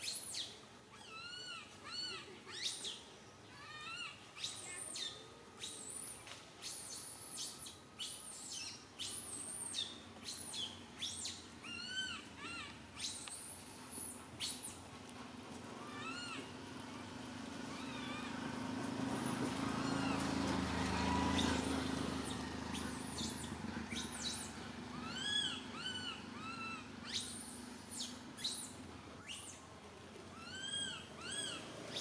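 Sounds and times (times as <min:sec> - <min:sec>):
baby monkey crying: 0:00.9 - 0:02.9, 0:03.5 - 0:05.1, 0:06.8 - 0:14.7, 0:15.8 - 0:16.5, 0:17.7 - 0:18.4, 0:19.8 - 0:20.3, 0:21.1 - 0:28.7, 0:30.4 - 0:31.6.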